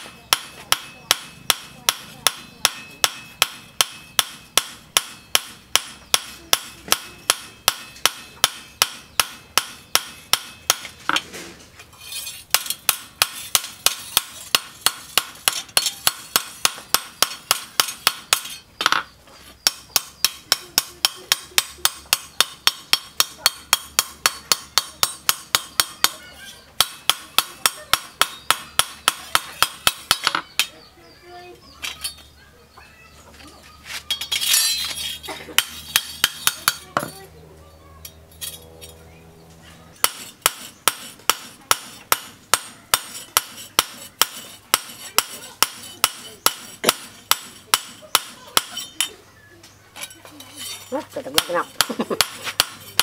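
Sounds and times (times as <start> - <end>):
hammer ringing on metal anvil: 0.1 - 10.8.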